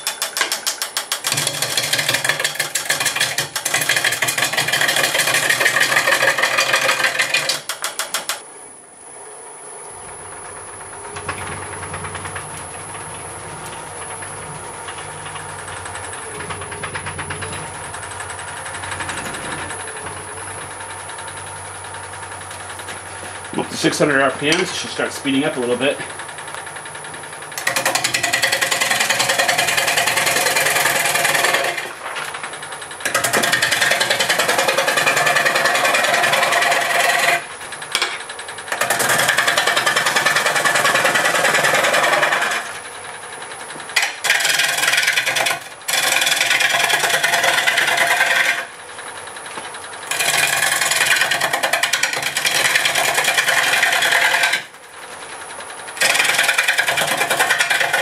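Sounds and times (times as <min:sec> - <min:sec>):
lathe tool cutting wood: 0:01.2 - 0:08.4, 0:27.5 - 0:32.0, 0:32.9 - 0:37.8, 0:38.6 - 0:42.8, 0:44.0 - 0:48.8, 0:50.0 - 0:54.8, 0:56.0 - 0:58.0.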